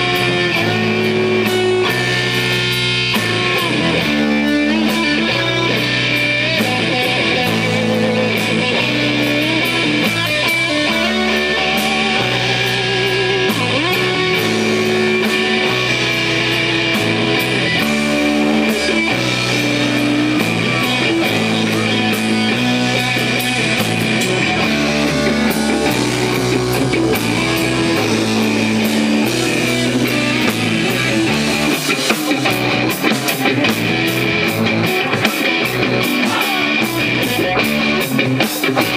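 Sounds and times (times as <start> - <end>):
bass line: 0.0 - 38.9
drum kit: 0.0 - 38.9
electric guitar: 0.0 - 38.9.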